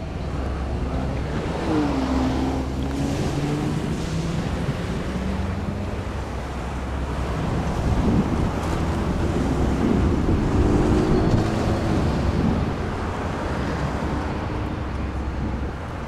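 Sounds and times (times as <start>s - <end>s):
wind buffeting microphone: 0.0s - 16.0s
vehicle passing: 0.9s - 14.8s.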